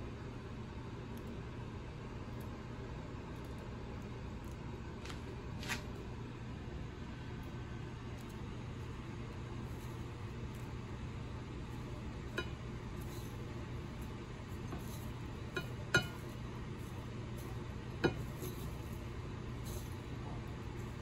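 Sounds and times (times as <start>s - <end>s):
steady low hum: 0.0s - 21.0s
tongs clinking against ceramic bowl: 12.3s - 21.0s.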